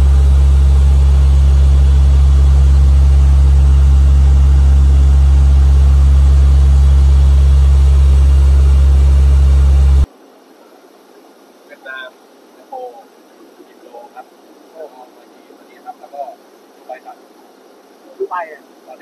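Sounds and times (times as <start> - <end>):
turboprop engines droning: 0.0 - 10.1.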